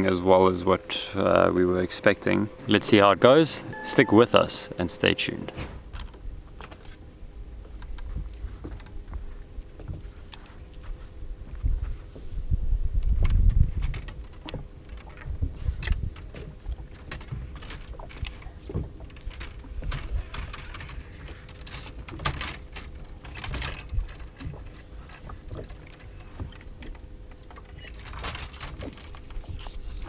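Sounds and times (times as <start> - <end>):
faint steady hum: 0.0 - 30.0
wind rumbling on microphone: 5.8 - 30.0
fishing tackle clicks and knocks: 13.0 - 29.8.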